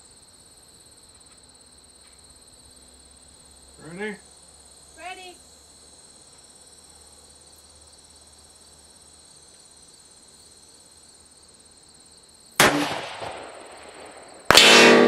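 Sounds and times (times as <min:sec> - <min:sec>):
insects chirring: 0:00.0 - 0:15.0
rifle shot: 0:12.6 - 0:15.0.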